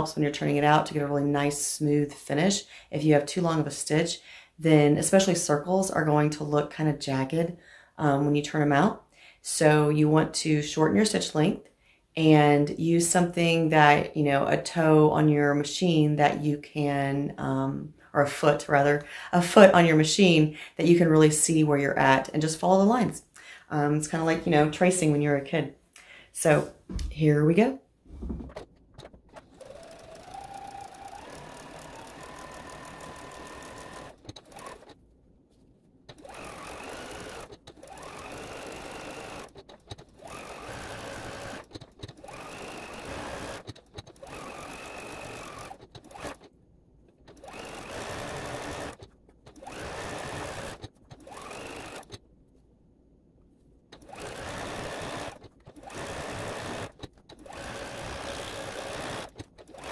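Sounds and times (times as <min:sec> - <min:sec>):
sewing machine stitching: 0:28.1 - 0:35.0, 0:36.1 - 0:46.6, 0:47.2 - 0:52.3, 0:53.9 - 0:59.9.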